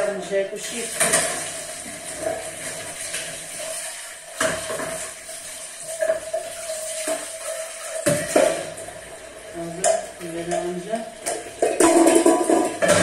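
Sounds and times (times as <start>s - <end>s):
running tap water: 0.0s - 13.0s
dishes and pots knocking: 5.9s - 8.8s, 9.8s - 13.0s.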